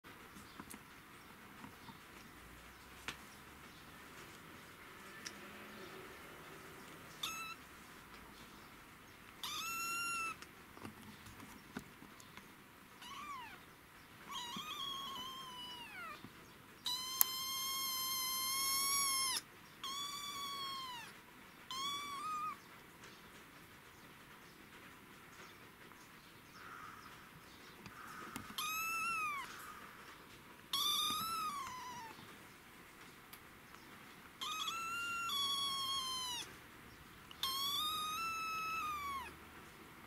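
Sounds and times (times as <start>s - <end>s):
kitten meowing: 7.1s - 7.6s, 9.4s - 10.4s, 13.0s - 13.6s, 14.3s - 16.2s, 16.8s - 22.6s, 28.3s - 29.8s, 30.7s - 32.2s, 34.4s - 36.5s, 37.3s - 39.4s.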